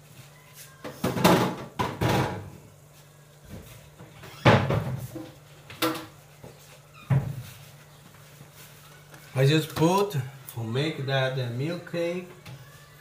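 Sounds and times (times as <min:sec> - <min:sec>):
faint steady hum: 0:00.0 - 0:13.0
kitchen knocks and clatters: 0:00.8 - 0:02.6, 0:04.0 - 0:06.2.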